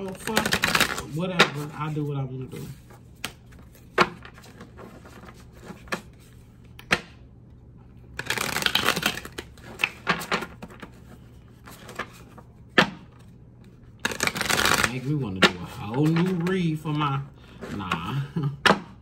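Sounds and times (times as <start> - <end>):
cards shuffling: 0.0 - 7.2, 8.1 - 16.9
cards snapping and tapping: 6.7 - 7.2.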